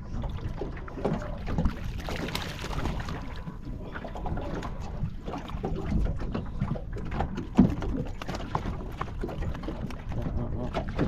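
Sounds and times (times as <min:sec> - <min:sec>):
wind and water rumble: 0:00.0 - 0:11.0
knocks and rattles in metal boat: 0:00.4 - 0:11.0.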